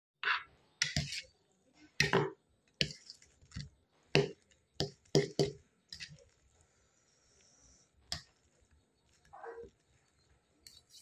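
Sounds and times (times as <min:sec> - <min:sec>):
steel spoon on steel plate: 0:00.2 - 0:01.3, 0:10.6 - 0:11.0.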